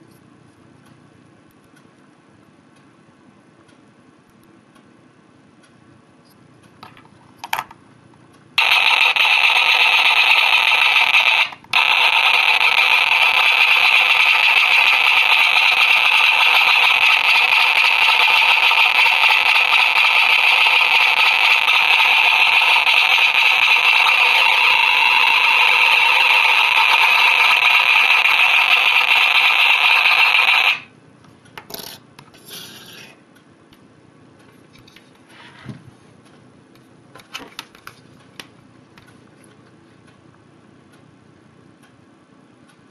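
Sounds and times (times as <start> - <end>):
harsh electronic noise buzz: 8.6 - 30.9.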